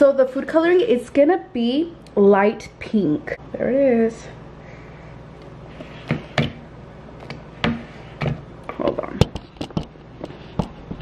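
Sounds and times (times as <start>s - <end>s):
spatula scraping plastic bowl: 5.7s - 6.6s.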